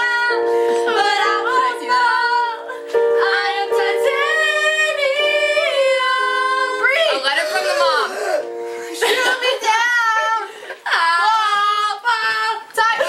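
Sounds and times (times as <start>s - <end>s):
sustained chords: 0.0s - 9.6s
women singing together: 0.0s - 13.0s.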